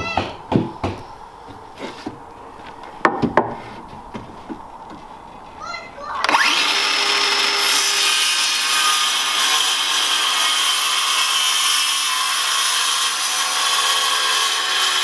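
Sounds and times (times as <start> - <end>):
circular saw cutting wood: 6.2 - 15.0.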